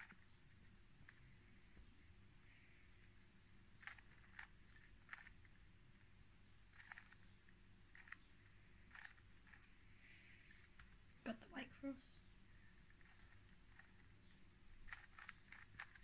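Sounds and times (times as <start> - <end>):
steady low hum: 0.0 - 16.0
puzzle cube clicking: 3.8 - 5.5, 6.7 - 7.3, 7.9 - 9.7, 14.7 - 16.0.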